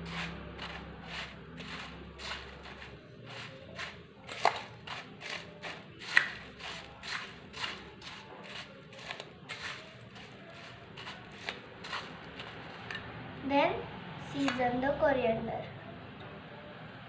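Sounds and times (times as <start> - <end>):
spoon scraping steel bowl: 0.0 - 13.1, 14.3 - 14.6.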